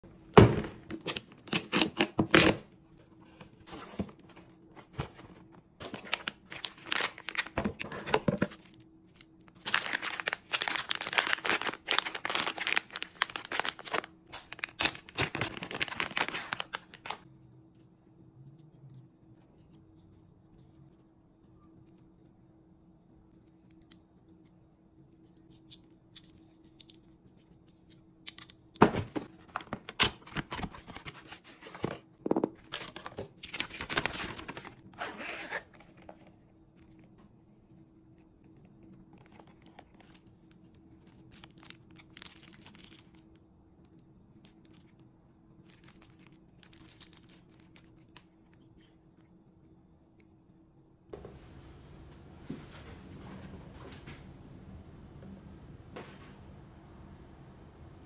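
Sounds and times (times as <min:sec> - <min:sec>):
rustling and handling: 0:02.9 - 0:17.2, 0:25.2 - 0:37.2
packaging ripping and crinkling: 0:05.8 - 0:17.2, 0:32.6 - 0:35.6, 0:41.0 - 0:43.4, 0:45.6 - 0:48.2.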